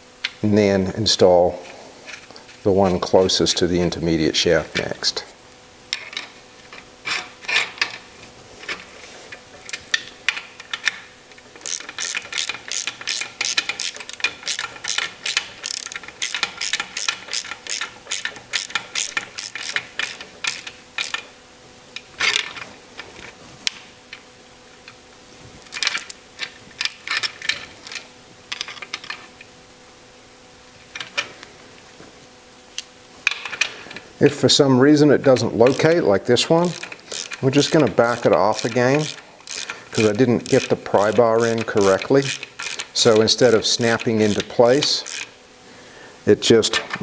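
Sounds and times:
socket ratchet clicking: 0:11.6 - 0:21.3, 0:35.6 - 0:36.0, 0:36.6 - 0:45.4.

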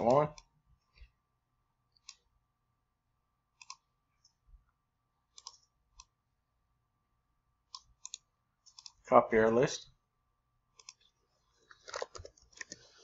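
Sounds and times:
faint computer mouse clicks: 0:03.6 - 0:03.8, 0:07.7 - 0:09.0, 0:10.8 - 0:11.1.

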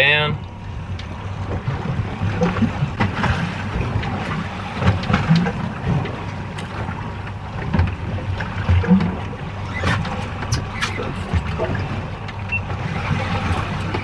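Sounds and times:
water slapping against boat hull: 0:00.0 - 0:14.0.

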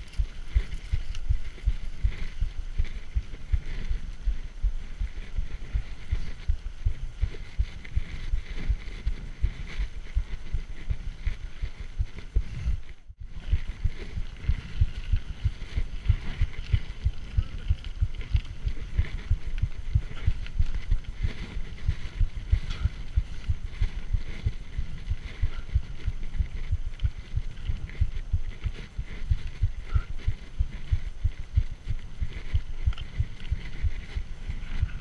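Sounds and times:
mountain bike rattling over gravel: 0:00.0 - 0:04.2, 0:13.3 - 0:35.0.

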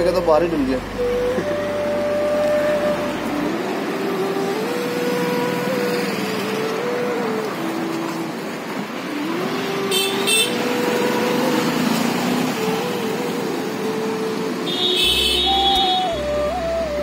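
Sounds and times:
engine note rising and falling: 0:00.0 - 0:08.4
background traffic noise: 0:00.0 - 0:17.0
vehicles passing: 0:00.0 - 0:17.0.

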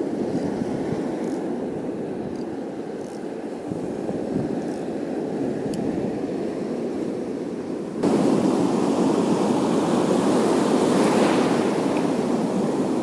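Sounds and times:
wind on microphone: 0:00.0 - 0:06.3
sea surf washing over rocks: 0:08.0 - 0:13.0.

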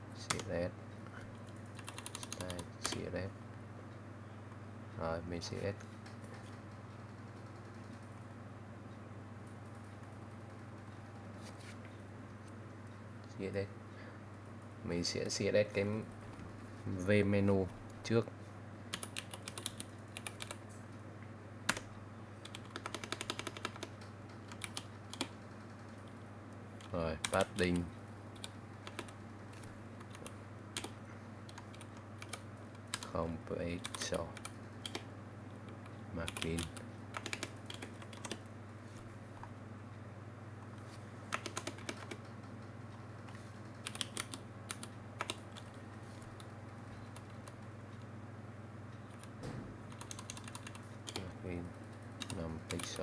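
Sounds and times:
steady low hum: 0:00.0 - 0:53.0
computer keyboard typing: 0:00.2 - 0:00.5, 0:01.4 - 0:03.1, 0:18.9 - 0:20.6, 0:21.7 - 0:26.2, 0:26.8 - 0:33.2, 0:33.8 - 0:35.1, 0:35.7 - 0:38.4, 0:41.3 - 0:42.6, 0:43.2 - 0:48.1, 0:49.0 - 0:51.4, 0:52.2 - 0:53.0.

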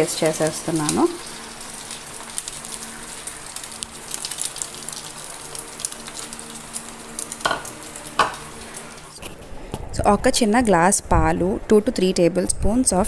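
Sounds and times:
bread sizzling in pan: 0:00.0 - 0:09.2.

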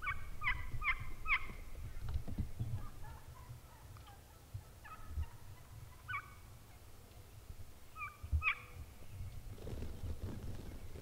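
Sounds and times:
wild turkeys calling: 0:00.0 - 0:07.2, 0:07.9 - 0:09.4.

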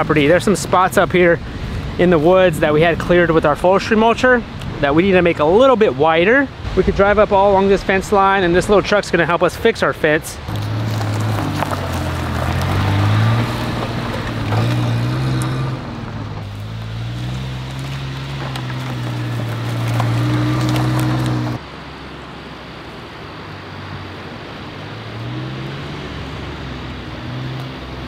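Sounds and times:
small truck engine driving: 0:10.4 - 0:28.0.

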